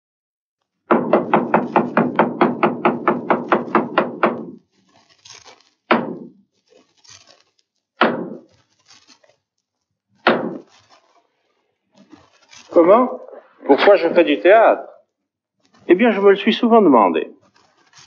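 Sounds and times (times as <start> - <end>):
staff knocking on wooden floor: 0.9 - 4.6, 10.3 - 10.6.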